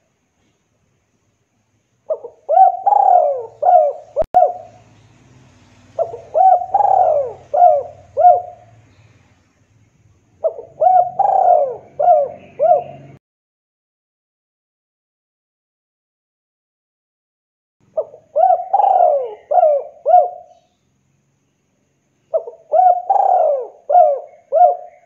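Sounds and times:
dove cooing: 2.1s - 4.8s, 5.9s - 8.8s, 10.4s - 13.2s, 18.0s - 20.6s, 22.3s - 25.0s.

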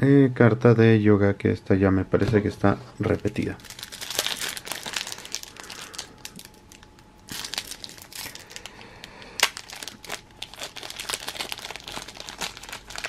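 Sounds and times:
foil wrapper crinkling: 3.2s - 13.0s
wrapper snap: 3.6s - 13.0s.

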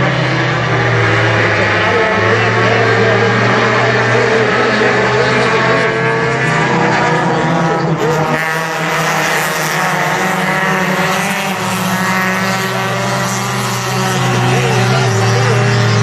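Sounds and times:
race cars racing past: 0.0s - 16.0s.

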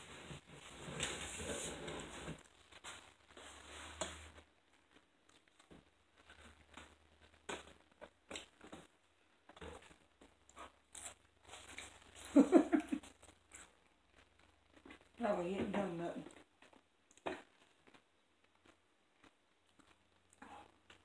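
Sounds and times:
packaging crinkling and rustling: 0.5s - 8.9s
chewing and biting: 4.0s - 8.7s, 9.5s - 12.4s, 13.0s - 15.2s, 16.3s - 21.0s.

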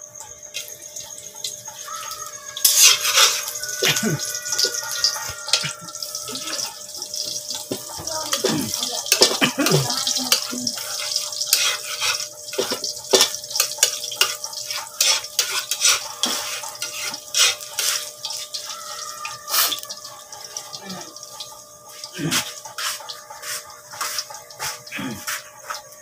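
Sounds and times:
hot oil sizzling and popping: 0.0s - 26.0s
spatula stirring in wok: 1.7s - 26.0s.

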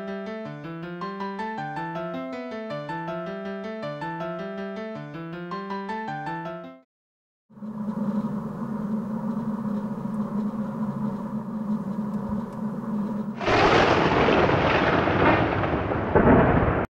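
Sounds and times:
low droning hum with held tones: 7.5s - 13.4s.

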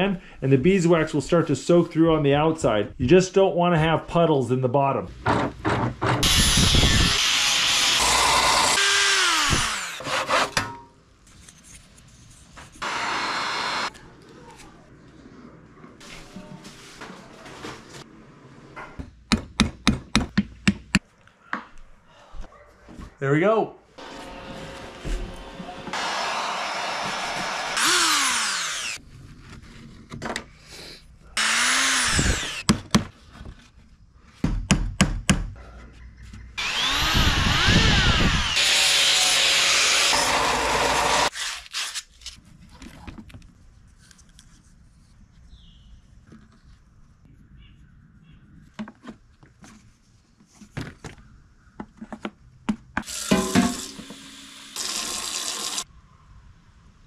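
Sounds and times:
motors spinning up and down: 6.2s - 10.0s, 25.4s - 29.0s, 31.4s - 32.6s, 36.6s - 41.3s
belt sander grinding wood: 6.2s - 10.2s, 12.8s - 13.9s, 24.0s - 29.0s, 31.4s - 32.6s, 36.6s - 41.3s
heat gun blowing: 25.9s - 29.0s.

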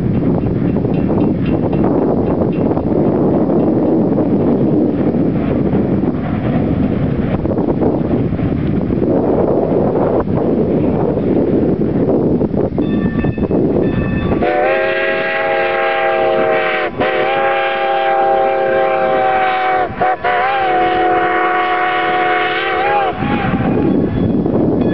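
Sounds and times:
wind rumble on microphone: 0.0s - 24.9s
steam whistle blasts: 14.4s - 23.9s.

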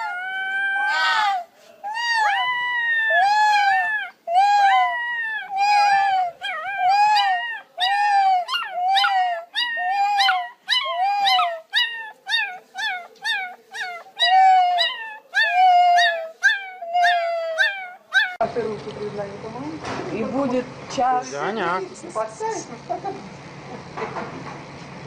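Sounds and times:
puppy howling: 0.0s - 18.4s.

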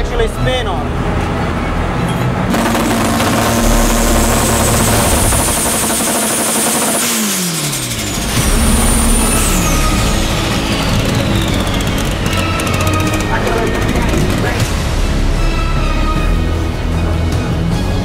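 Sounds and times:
car engine revving: 1.0s - 15.0s
turbo whistle: 8.3s - 13.2s.

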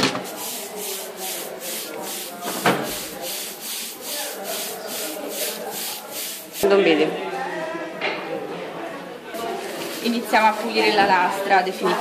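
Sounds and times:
cloth scrubbing metal plate: 0.2s - 6.6s.

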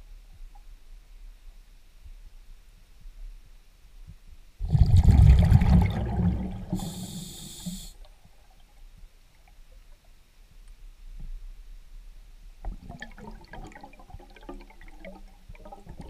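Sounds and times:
exhaled bubbles burbling: 4.6s - 7.4s, 12.7s - 16.0s
regulator high hiss: 6.7s - 8.0s.

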